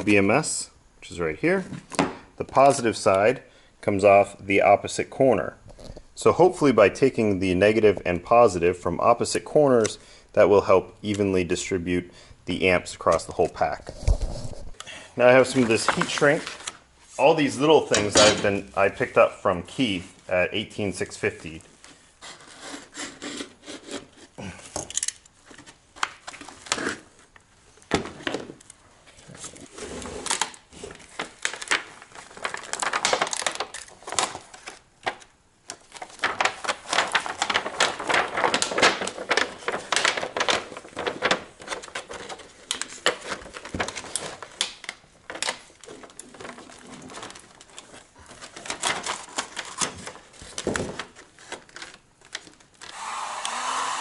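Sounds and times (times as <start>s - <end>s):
plastic tubing crinkling: 13.0s - 52.9s.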